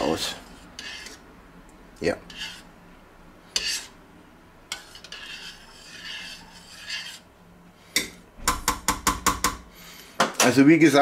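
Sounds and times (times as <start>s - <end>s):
spoon scraping metal pot: 0.0s - 1.3s, 2.2s - 2.7s, 3.5s - 4.0s, 4.7s - 7.3s.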